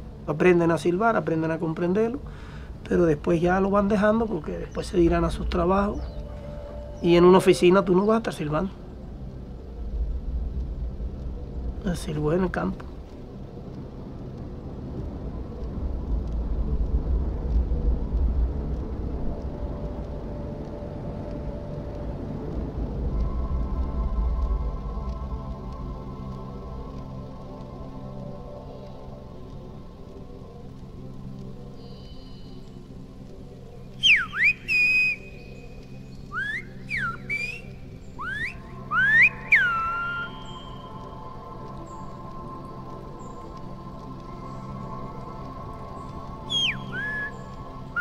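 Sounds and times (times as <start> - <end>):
low rumbling wind: 0.0 - 48.0
person whistling sliding phrases: 34.0 - 35.4, 36.3 - 41.0, 46.5 - 47.4.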